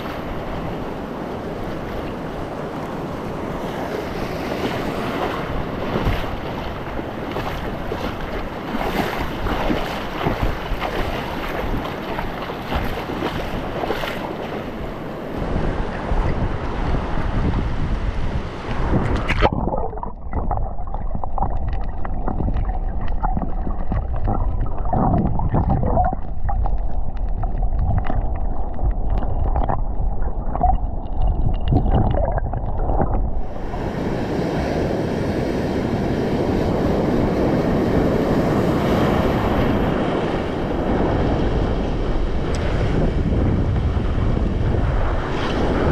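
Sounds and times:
surf washing: 0:00.0 - 0:45.9
wind buffeting microphone: 0:00.0 - 0:45.9
underwater bubbling: 0:18.8 - 0:34.3.

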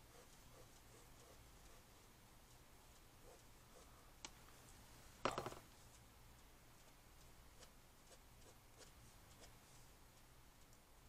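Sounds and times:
pen ticking on paper: 0:00.0 - 0:03.9.

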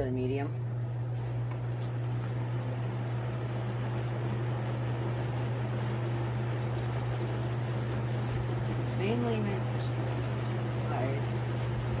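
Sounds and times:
box fan running: 0:00.0 - 0:12.0.

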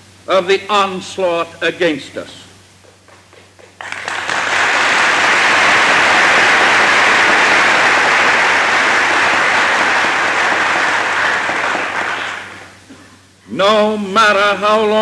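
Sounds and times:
dense steady applause: 0:02.8 - 0:12.8.

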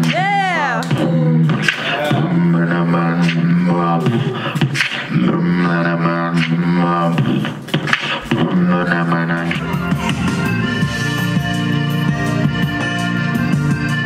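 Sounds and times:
beatbox percussive clicks: 0:00.8 - 0:02.3, 0:03.1 - 0:05.4, 0:06.3 - 0:08.6.

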